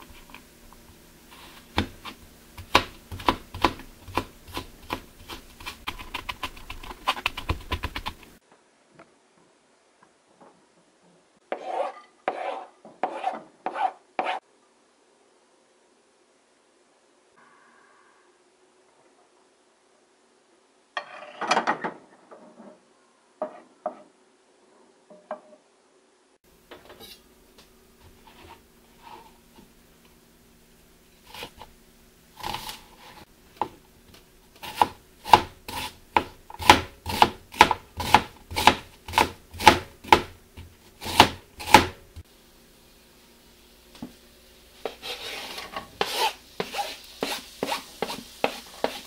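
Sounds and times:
knife slicing onion on board: 0:01.4 - 0:08.3, 0:11.5 - 0:14.4, 0:31.2 - 0:31.7, 0:32.4 - 0:42.2, 0:44.8 - 0:49.0.

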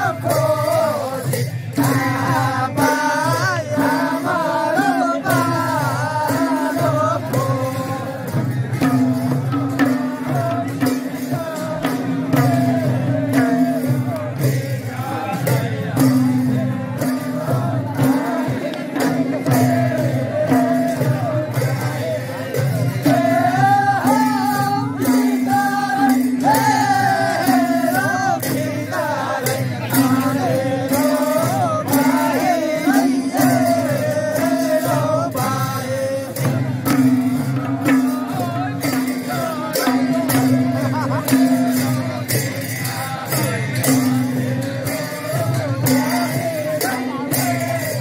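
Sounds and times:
jingling percussion: 0:00.0 - 0:48.0
person singing: 0:37.9 - 0:42.0.

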